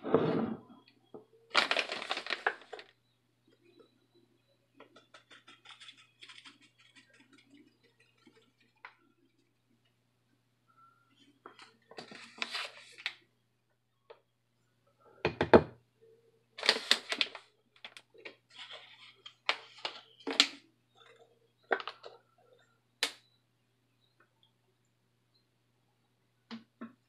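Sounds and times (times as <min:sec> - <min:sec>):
kitchen items knocking and rustling: 0:15.3 - 0:15.8.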